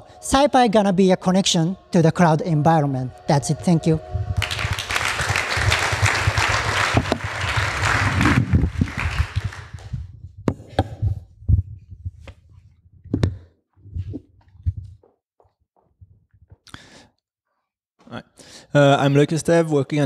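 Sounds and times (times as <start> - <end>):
audience applause: 4.4 - 10.0.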